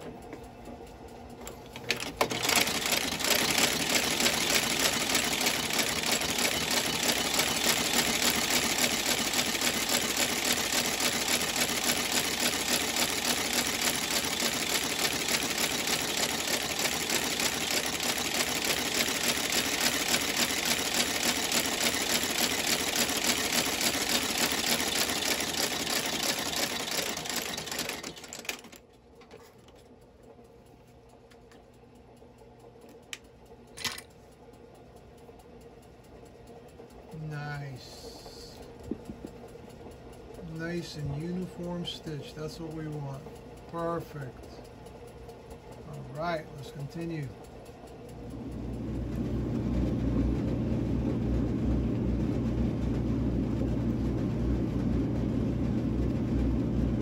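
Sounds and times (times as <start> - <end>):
stitching machine clatter: 1.4 - 30.0.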